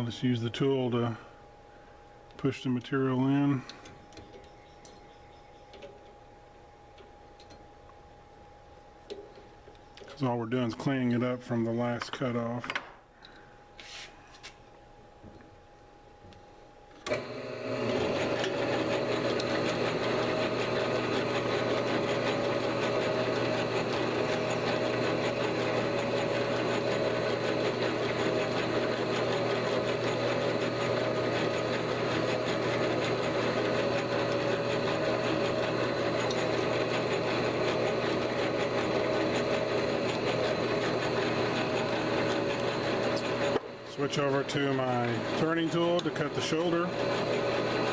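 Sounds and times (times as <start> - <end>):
lathe motor hum and whine: 17.0 - 47.9.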